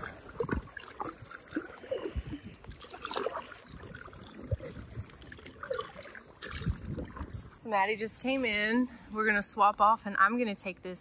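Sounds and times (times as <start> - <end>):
kayak paddle splashing in water: 0.0 - 7.6
water dripping: 0.0 - 7.6.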